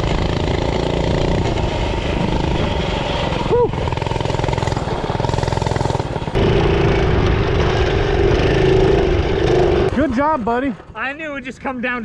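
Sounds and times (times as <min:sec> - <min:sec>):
mini bike engine rattle: 0:00.0 - 0:10.1.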